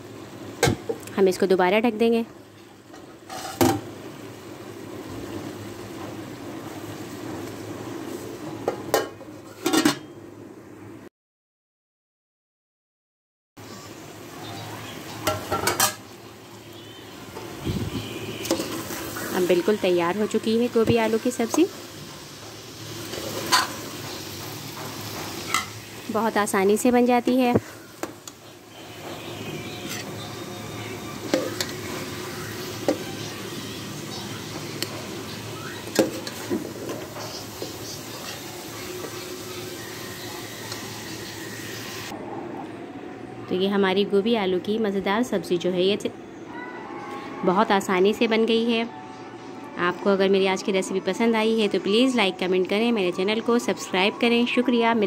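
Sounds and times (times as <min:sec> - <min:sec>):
soft sizzle: 0:00.0 - 0:09.9, 0:13.6 - 0:42.1
steel lid clanking: 0:08.9 - 0:10.2, 0:23.1 - 0:25.8
pot cooking low rushing: 0:13.6 - 0:42.2.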